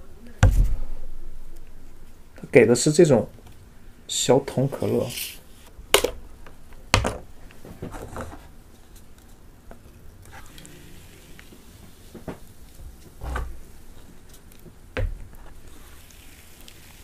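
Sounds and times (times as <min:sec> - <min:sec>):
cola pouring into cup: 0:15.6 - 0:17.0.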